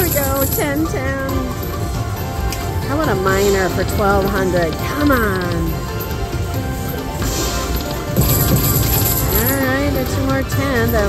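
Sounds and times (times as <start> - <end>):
slot machine music and effects: 0.0 - 11.0
high ringing: 6.9 - 10.2.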